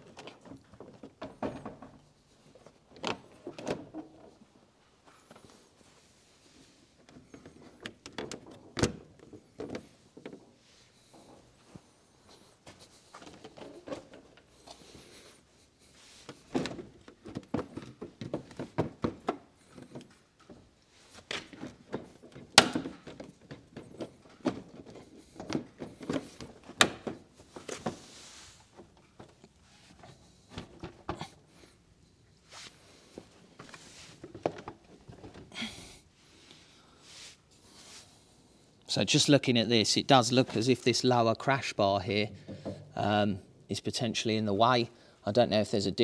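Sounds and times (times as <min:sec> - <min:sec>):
plastic bumper knocks and taps: 0:42.3 - 0:43.0.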